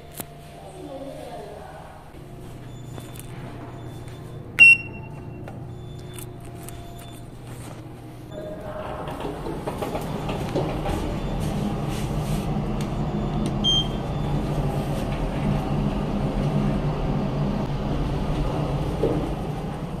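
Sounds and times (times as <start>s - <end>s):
elevator hum and rumble: 0.0s - 20.0s
short high beep: 3.8s - 7.2s
elevator doors knock: 8.6s - 11.4s.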